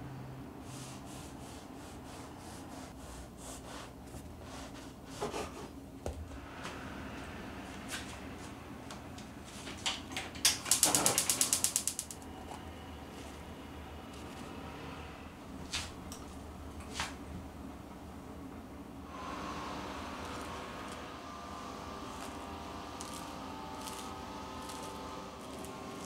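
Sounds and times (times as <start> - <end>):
rattling run of quick clicks: 10.5 - 12.2
bread knife sawing through bread: 22.0 - 26.0.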